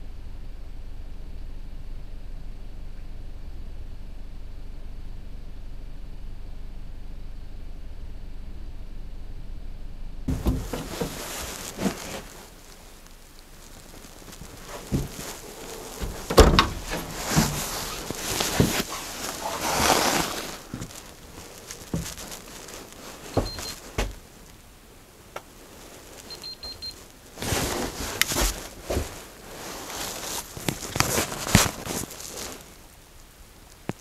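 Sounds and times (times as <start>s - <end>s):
footsteps on wooden boards: 10.3s - 24.4s, 27.4s - 32.3s
clothing rustling: 10.3s - 33.0s.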